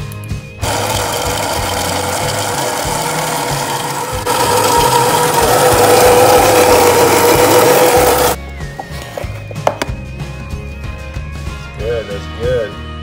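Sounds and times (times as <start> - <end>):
coffee grinder grinding beans: 0.6 - 8.4.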